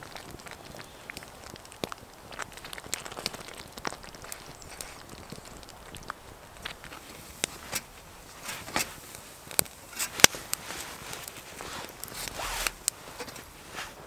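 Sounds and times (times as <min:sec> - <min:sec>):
wood fire crackling and popping: 0:00.0 - 0:14.0
scraping and rustling of bread: 0:02.4 - 0:06.0, 0:06.6 - 0:14.0.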